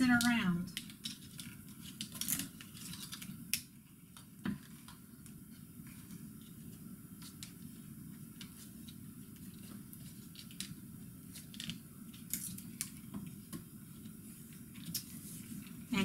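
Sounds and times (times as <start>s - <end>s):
low steady hum: 0.0s - 16.0s
wire twisting clicks and scratches: 0.1s - 3.7s.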